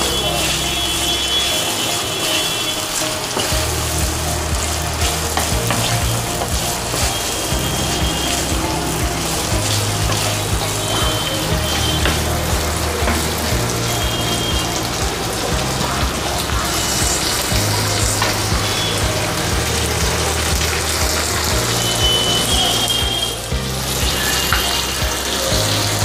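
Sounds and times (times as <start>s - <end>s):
food sizzling in oil: 0.0s - 26.0s
soft background music: 0.0s - 26.0s.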